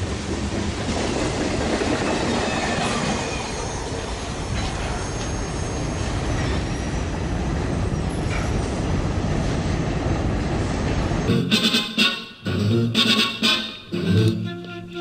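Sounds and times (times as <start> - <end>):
train wheels on track: 0.0 - 12.6
wheel squeal: 2.3 - 7.1.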